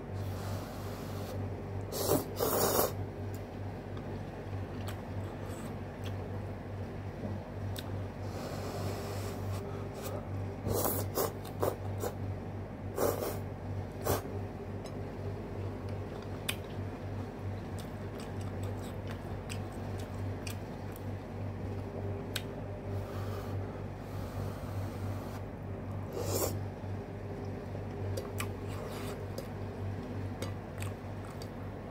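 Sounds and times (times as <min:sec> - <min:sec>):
chewing and mouth smacks: 0:15.8 - 0:16.8, 0:17.7 - 0:21.1, 0:27.4 - 0:29.6, 0:30.4 - 0:31.6.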